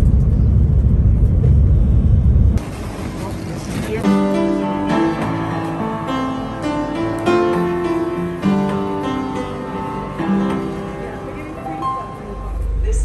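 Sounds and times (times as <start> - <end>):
upright piano chords: 4.0 - 13.0.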